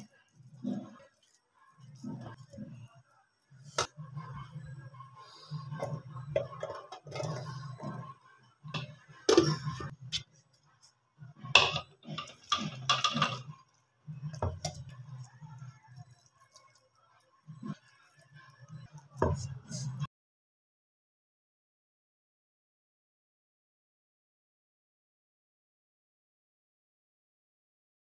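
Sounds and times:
scraping steel jar: 0:11.5 - 0:13.8.

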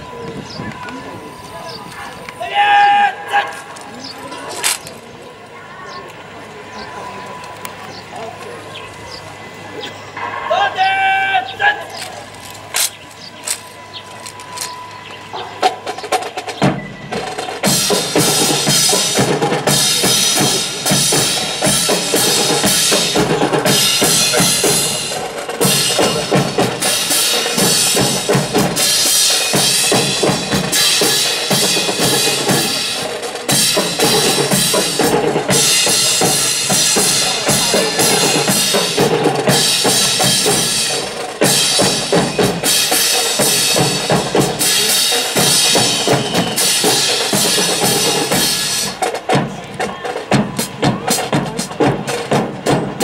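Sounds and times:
marching snare and bass drums: 0:12.1 - 0:53.0.

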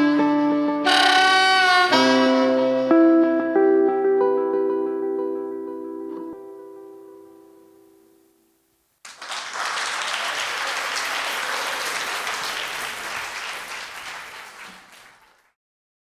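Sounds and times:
applause: 0:09.0 - 0:15.6.

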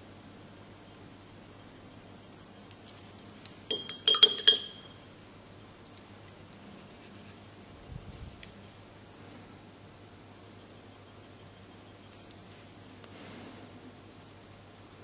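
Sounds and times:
small hard objects clinking: 0:03.7 - 0:05.0.

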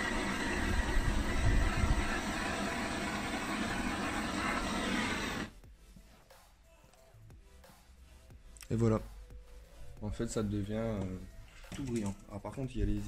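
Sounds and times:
low rumble: 0:00.0 - 0:05.5
blowtorch hissing: 0:00.0 - 0:05.6.

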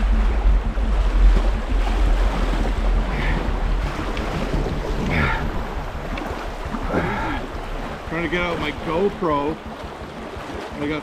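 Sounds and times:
river water rushing: 0:00.0 - 0:11.0
wind rumbling on microphone: 0:00.0 - 0:11.0.

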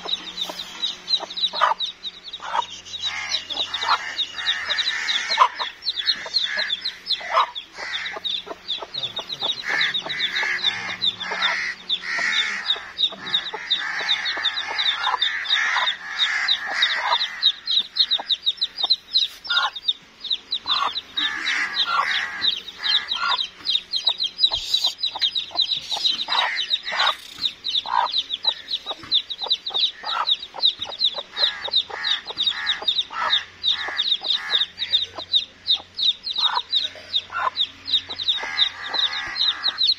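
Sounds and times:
chicks peeping: 0:00.0 - 0:39.9
hen clucking: 0:00.0 - 0:39.9.

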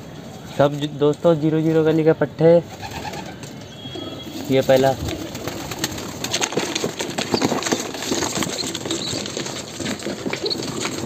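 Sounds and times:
pigeons scuffling: 0:02.8 - 0:11.0
pigeon wings flapping: 0:04.4 - 0:11.0
cardboard rustling and knocking: 0:05.8 - 0:11.0.

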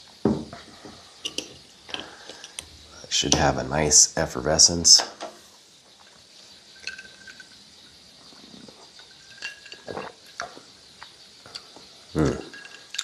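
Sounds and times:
person gulping a drink: 0:08.4 - 0:10.6, 0:11.5 - 0:13.0.

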